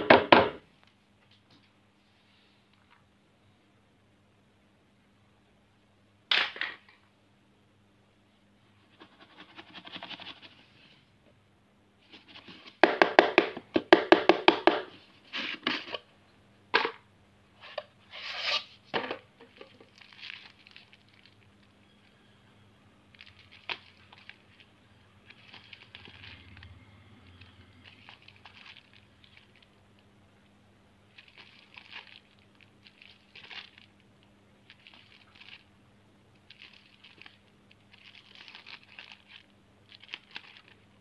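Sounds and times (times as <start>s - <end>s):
crinkling of paper and wrappers: 19.4s - 22.3s, 23.1s - 30.0s, 31.1s - 41.0s.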